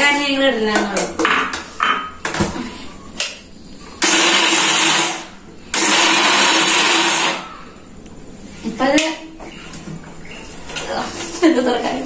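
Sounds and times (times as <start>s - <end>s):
mixer grinder motor running: 4.0s - 7.5s.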